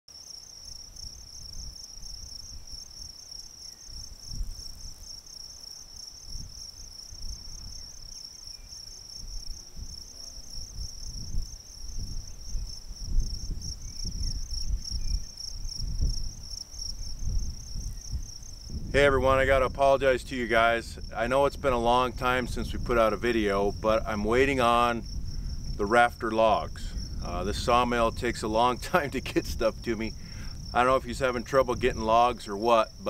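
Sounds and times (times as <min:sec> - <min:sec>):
insects chirring: 0:00.1 - 0:33.0
wind buffeting microphone: 0:00.9 - 0:03.1, 0:03.9 - 0:05.1, 0:06.2 - 0:08.2, 0:09.1 - 0:33.0.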